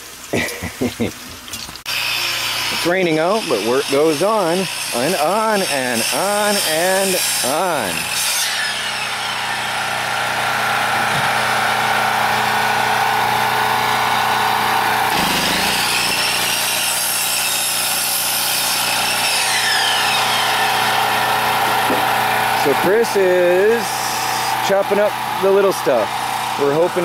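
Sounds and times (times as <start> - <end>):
saw blade rasping in wood: 1.9 - 10.2, 13.8 - 27.0
chop saw motor whine: 1.9 - 27.0.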